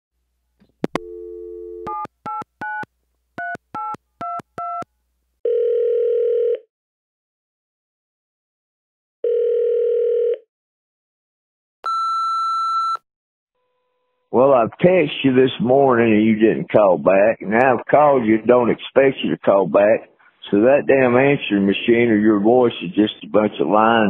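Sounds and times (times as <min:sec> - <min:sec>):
dial tone: 0:01.0 - 0:02.0, 0:05.4 - 0:06.7, 0:09.2 - 0:10.5
telephone ringing tone: 0:01.0 - 0:02.1, 0:05.4 - 0:06.7, 0:09.2 - 0:10.4.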